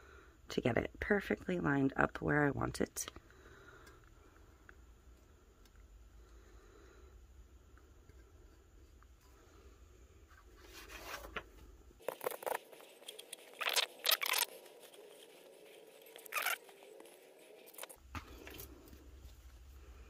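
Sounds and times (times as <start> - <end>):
paper towel rubbing and crinkling: 12.0 - 18.0.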